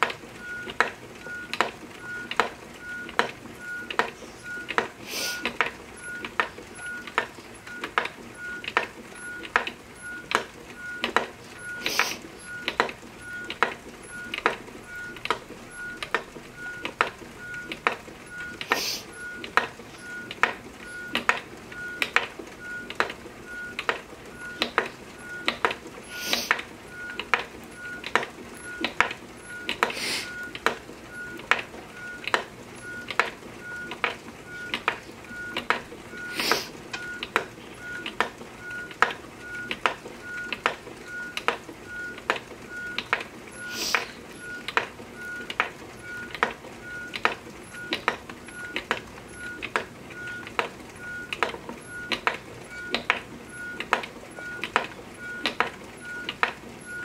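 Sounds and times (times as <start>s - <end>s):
brief hisses: 5.1s - 5.4s, 18.7s - 19.1s, 29.9s - 30.3s.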